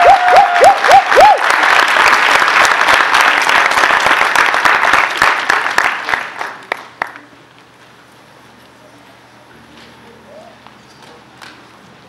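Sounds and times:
audience applause: 0.0 - 7.3.

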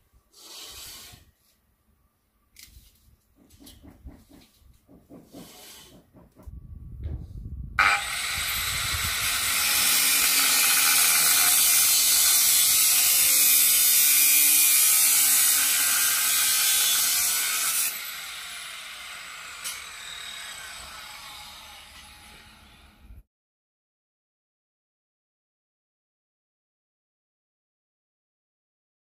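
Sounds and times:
angle grinder grinding steel: 7.8 - 23.0.

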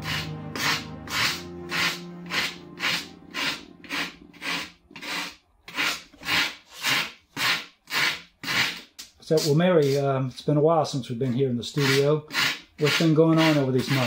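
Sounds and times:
faint background music: 0.0 - 5.2, 12.8 - 14.0
rasp scraping foam: 0.0 - 10.1, 11.2 - 14.0.

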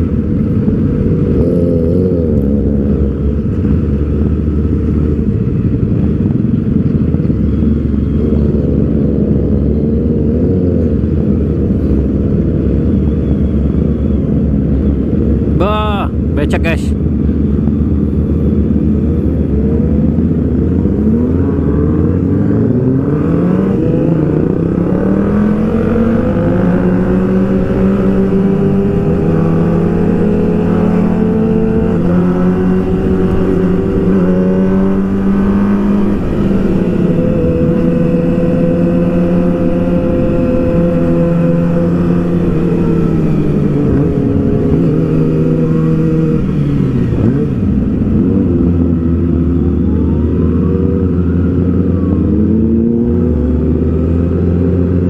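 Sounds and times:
sport bike engine revving: 19.5 - 50.0.

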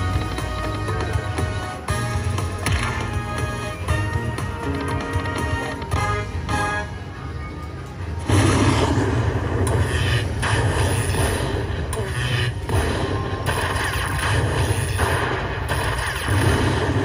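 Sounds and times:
slot machine win sound effects: 0.0 - 7.1
low casino hum: 0.0 - 17.0.

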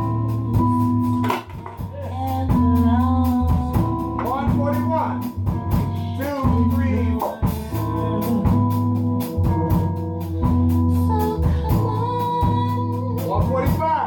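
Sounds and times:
woman singing into microphone: 0.0 - 4.4, 7.4 - 13.6
live band playing bossa nova: 0.0 - 13.8.

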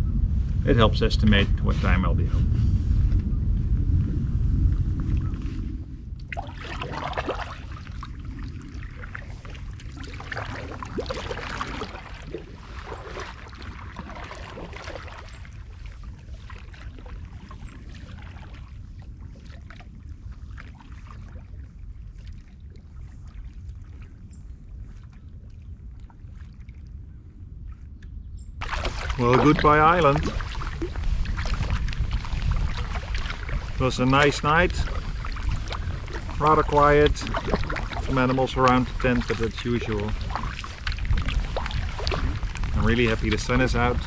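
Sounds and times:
water lapping: 5.0 - 27.9, 28.6 - 44.0
kayak paddle splashing: 6.2 - 26.8, 28.6 - 44.0.

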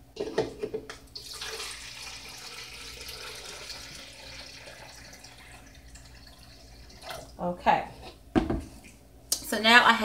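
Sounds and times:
liquid pouring and splashing: 1.2 - 7.4
plastic pitcher knocks: 8.3 - 8.7.

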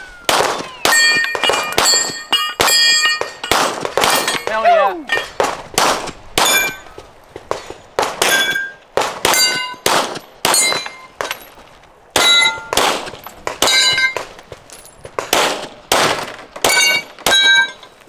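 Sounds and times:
gunshots: 0.2 - 4.5, 5.2 - 6.8, 7.5 - 10.9, 12.1 - 14.3, 15.2 - 17.5
steel plate ringing: 0.8 - 5.4, 6.4 - 6.9, 8.2 - 9.8, 12.2 - 12.8, 13.6 - 14.2, 16.7 - 18.0.

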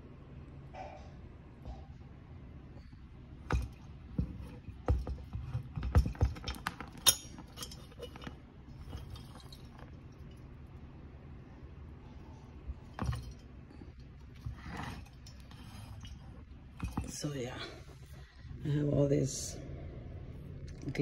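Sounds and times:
ceramic knocks and clinks: 3.5 - 9.9, 12.8 - 13.5, 14.5 - 17.2
soft handling noise: 12.1 - 18.6.

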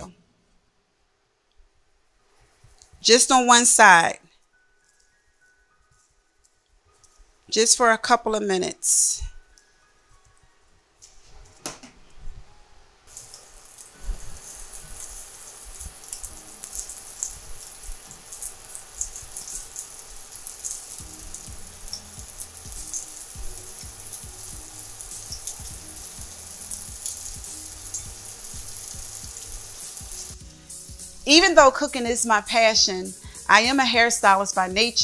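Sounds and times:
scallops sizzling in oil: 13.1 - 32.0.

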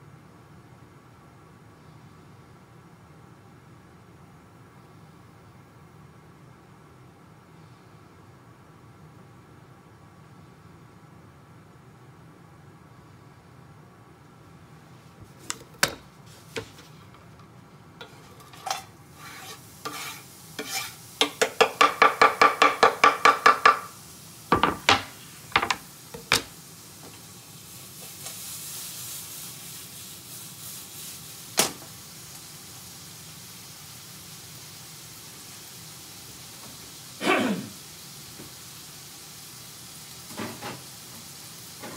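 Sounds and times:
soft sizzle: 14.2 - 41.9
ringing utensil strokes: 18.0 - 21.0
utensil taps and clinks: 21.2 - 23.9.

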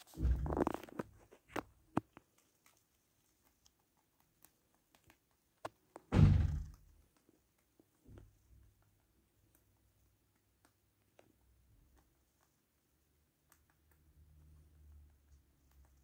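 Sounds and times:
dull thuds: 0.1 - 0.8, 6.1 - 6.8.

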